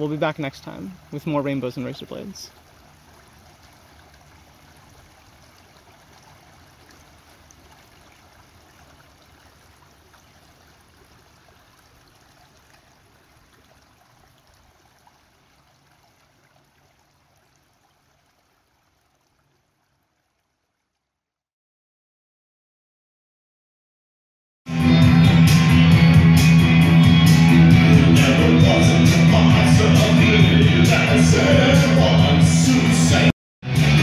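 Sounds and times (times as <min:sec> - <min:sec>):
stream running water: 0:00.0 - 0:21.3.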